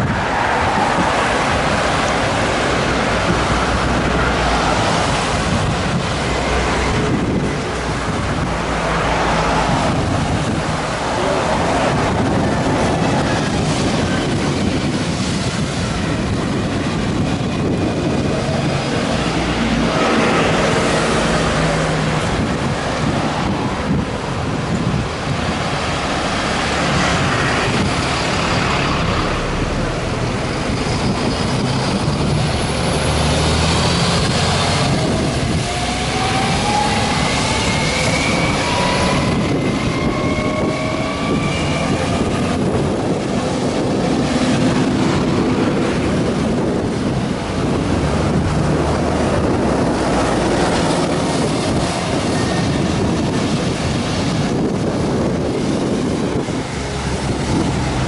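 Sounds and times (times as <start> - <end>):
bus drivetrain whine: 0.0 - 58.0
road traffic: 0.0 - 58.0
wind on microphone: 0.0 - 58.0.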